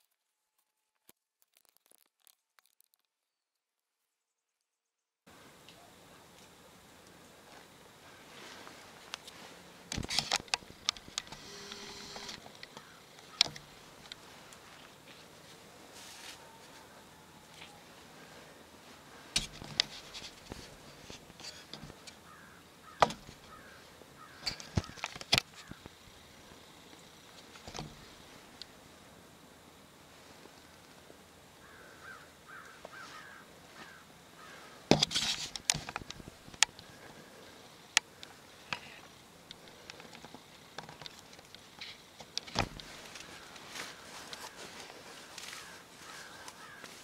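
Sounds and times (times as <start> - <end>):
leaves rustling: 5.3 - 47.0
crows cawing faintly: 7.9 - 9.0, 11.2 - 26.6, 30.4 - 34.9, 36.0 - 40.4, 42.8 - 47.0
sharp clicks and knocks: 24.4 - 26.0.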